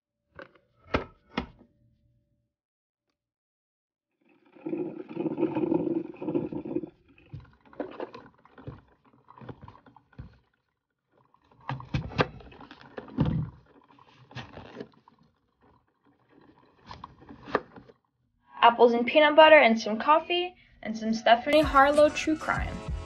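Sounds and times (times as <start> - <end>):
coffee maker gurgling: 4.2 - 18.0.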